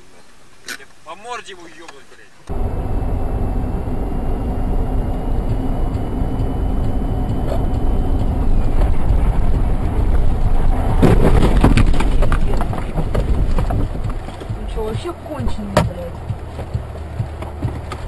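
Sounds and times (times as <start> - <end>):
car engine and tyres on snow: 0.0 - 18.0
knocks and rattling: 4.4 - 18.0.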